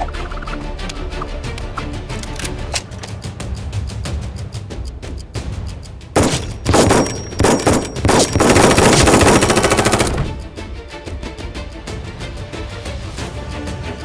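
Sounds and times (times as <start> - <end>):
background music with steady beat: 0.0 - 14.0
rapid automatic gunfire: 6.2 - 10.4.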